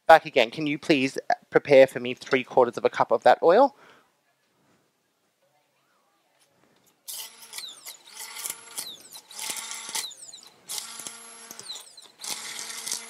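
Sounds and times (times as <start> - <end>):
stick blender whirring: 7.1 - 13.0.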